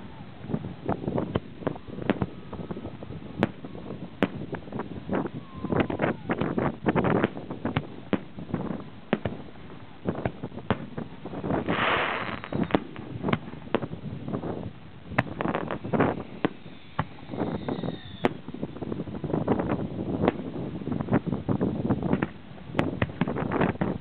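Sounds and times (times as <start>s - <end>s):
falling firework whistle: 5.2s - 6.6s, 11.6s - 13.4s, 15.4s - 18.5s
firework hiss: 10.8s - 19.4s
firework shells bursting: 11.6s - 14.0s.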